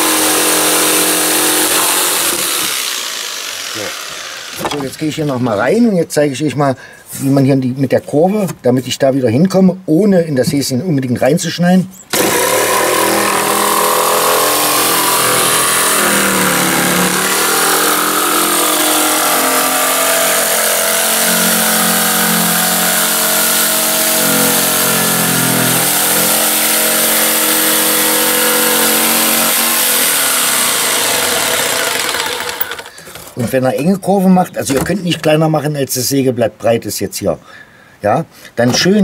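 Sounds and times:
electric jigsaw sawing plywood: 0.0s - 5.4s, 12.1s - 33.4s.

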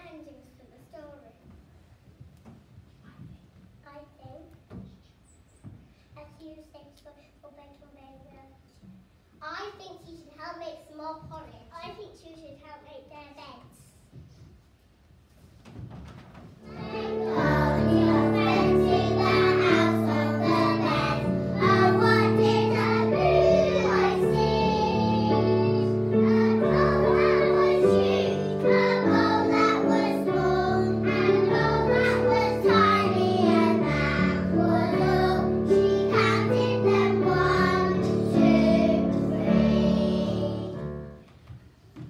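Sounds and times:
children singing together: 16.6s - 41.1s
instrumental accompaniment: 16.6s - 41.2s.

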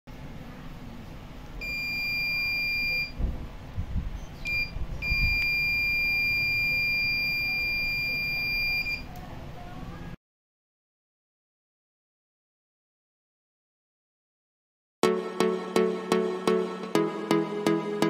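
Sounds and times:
high-pitched buzzer tone: 1.6s - 3.1s.

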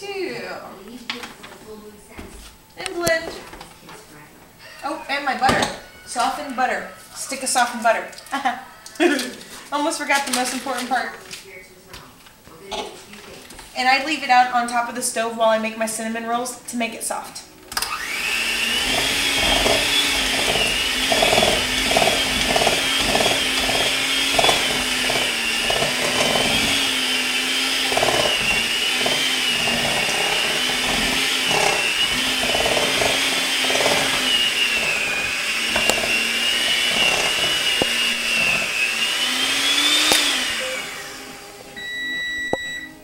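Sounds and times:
electric hand mixer running: 17.7s - 42.9s
mixer switching off: 17.7s - 42.9s.

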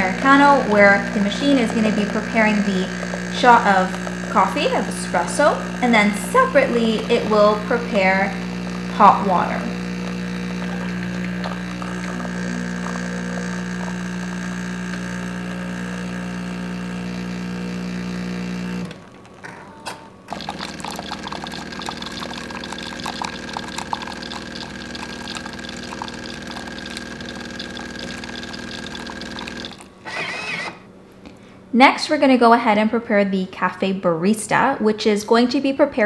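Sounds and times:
espresso machine pump humming: 0.0s - 19.4s, 20.2s - 30.8s
hot water hissing and splashing: 9.8s - 14.8s, 20.3s - 29.9s.

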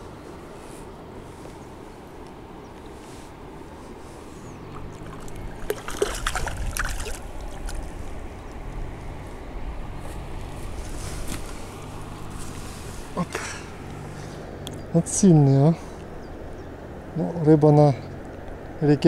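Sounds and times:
fish splashing in water: 4.6s - 9.0s.

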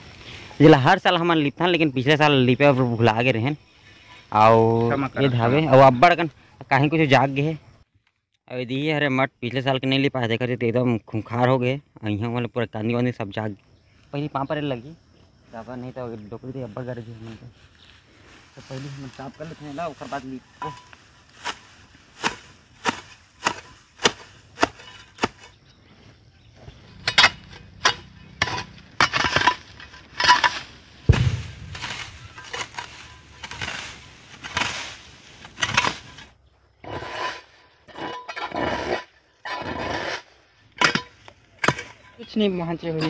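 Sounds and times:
grass rustling: 15.3s - 36.4s
hoe chopping soil: 21.4s - 25.6s, 27.0s - 36.3s
heavy thump: 31.1s - 32.6s.

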